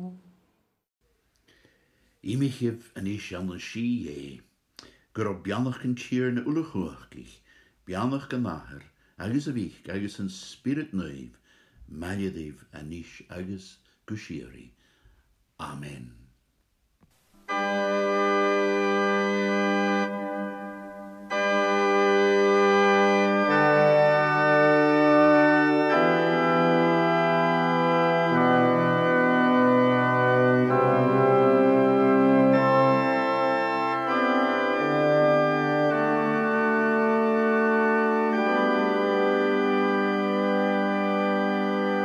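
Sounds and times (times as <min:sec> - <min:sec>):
organ playing held chords: 0:17.5 - 0:42.0.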